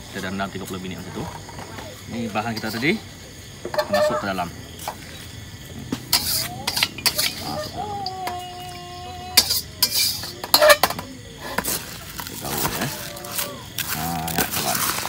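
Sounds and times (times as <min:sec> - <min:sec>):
spatula scraping a wok: 0:06.0 - 0:07.8, 0:09.4 - 0:15.0
metal spoon stirring rice: 0:06.1 - 0:07.4, 0:09.4 - 0:11.0, 0:11.6 - 0:15.0.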